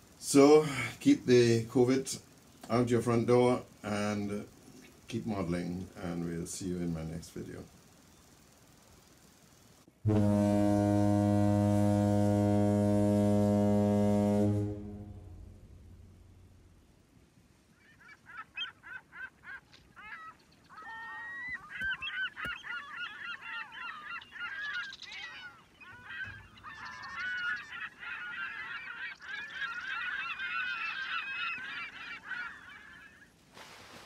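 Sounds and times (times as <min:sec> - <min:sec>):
birds honking: 0:17.7 - 0:33.4.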